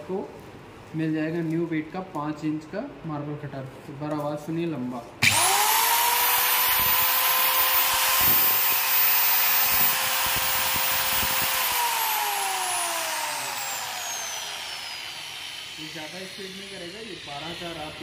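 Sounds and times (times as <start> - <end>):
marble cutter motor whining: 5.2 - 18.0.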